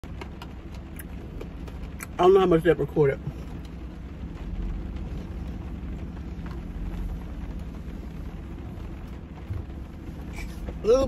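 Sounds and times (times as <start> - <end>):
low rumble: 0.0 - 11.0
rain on car roof: 0.0 - 11.0.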